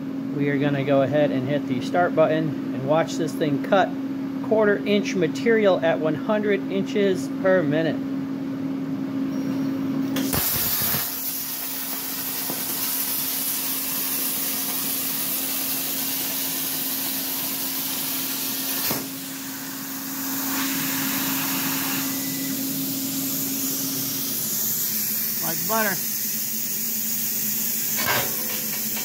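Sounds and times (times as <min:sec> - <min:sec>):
steady machine hum: 0:00.0 - 0:29.0
arc starting pop: 0:10.2 - 0:13.0, 0:18.8 - 0:19.2
plasma cutter click: 0:10.2 - 0:13.6, 0:17.9 - 0:19.3, 0:27.2 - 0:29.0
plasma cutter arc hissing: 0:10.2 - 0:29.0.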